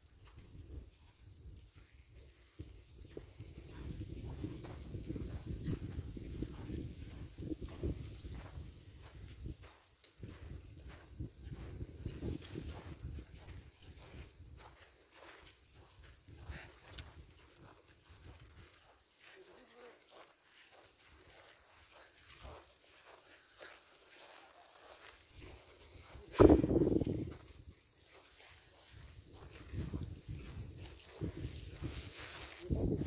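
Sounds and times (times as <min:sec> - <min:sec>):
footsteps on dry stubbly ground: 0:00.0 - 0:33.0
high-pitched insect chirring: 0:00.0 - 0:33.0
loud low thump: 0:26.3 - 0:27.1.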